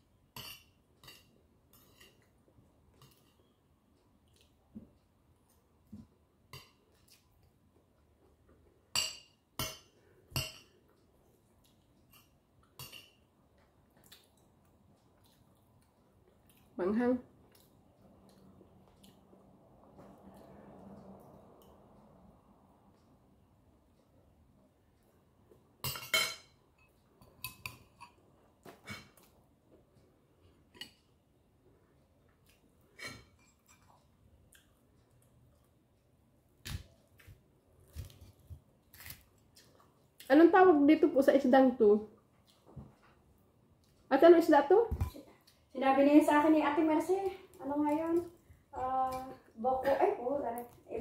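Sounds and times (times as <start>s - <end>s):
metal spoon clinking on dishes: 8.9s - 10.8s, 12.1s - 13.2s, 25.8s - 28.2s
spoon clinking on ceramic dishes: 25.8s - 28.2s.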